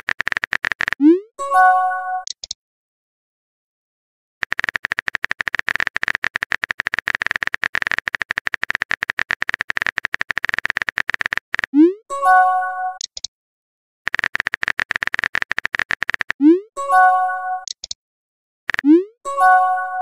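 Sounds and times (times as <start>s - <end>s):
rapid keyboard typing clicks: 0.0s - 1.0s, 4.4s - 11.8s, 13.0s - 13.3s, 14.1s - 16.5s, 17.6s - 18.0s, 18.7s - 19.0s.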